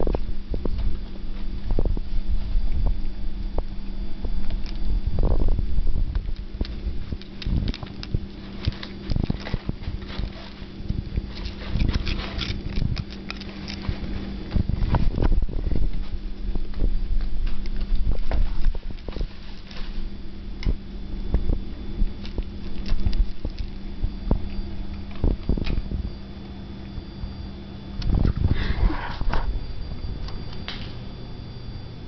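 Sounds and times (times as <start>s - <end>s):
cat crunching a crisp: 3.8s - 5.0s, 6.1s - 16.5s, 17.2s - 27.1s.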